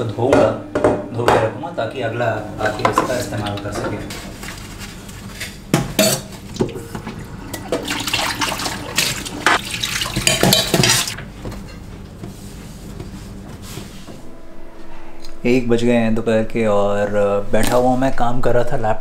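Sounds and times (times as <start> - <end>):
dishes clinking in a steel sink: 5.3 - 11.8
tap water running: 6.4 - 11.2.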